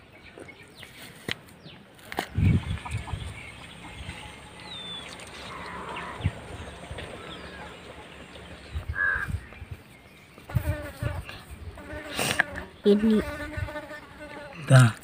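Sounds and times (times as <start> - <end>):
fly buzzing: 10.5 - 14.8.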